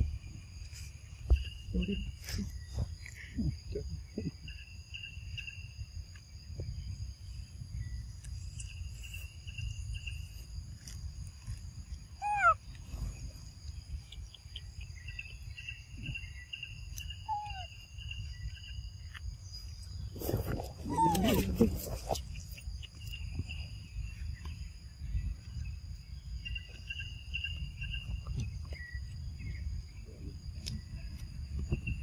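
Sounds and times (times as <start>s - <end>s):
high insect drone: 0.0s - 32.0s
bird chirps and trills: 14.0s - 20.1s.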